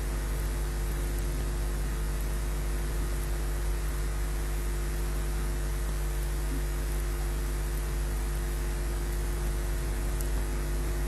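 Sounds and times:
electrical hum and hiss: 0:00.0 - 0:11.0.

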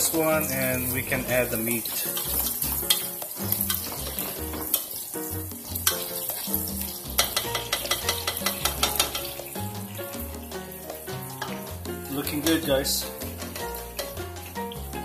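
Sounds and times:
background music: 0:00.0 - 0:15.0
onions sizzling in a pot: 0:00.0 - 0:15.0
utensil clicking against pot: 0:01.9 - 0:04.9, 0:05.8 - 0:06.5, 0:07.1 - 0:09.6, 0:10.6 - 0:14.8.

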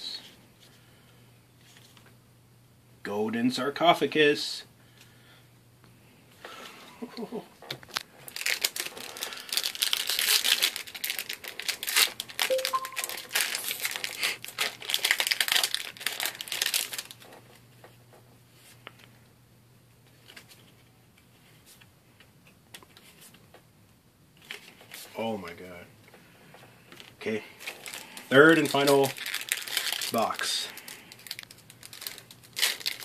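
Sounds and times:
foil pack crinkling and tearing: 0:07.9 - 0:17.6, 0:27.0 - 0:33.0.

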